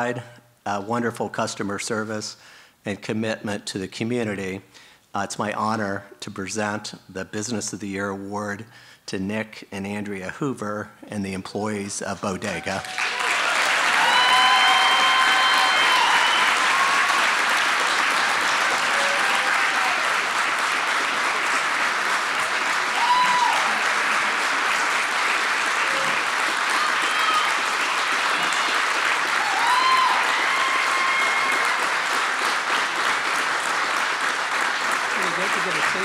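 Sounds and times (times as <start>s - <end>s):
audience applauding: 12.4s - 36.0s.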